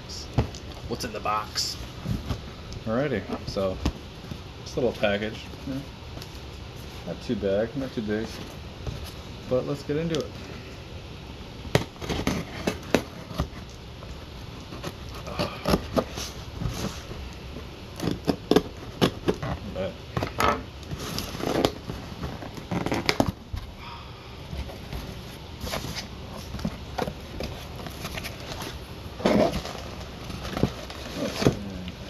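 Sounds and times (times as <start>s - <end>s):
packing tape crackling: 11.7s - 23.4s
knife cutting cardboard box: 11.8s - 13.6s, 18.0s - 19.6s.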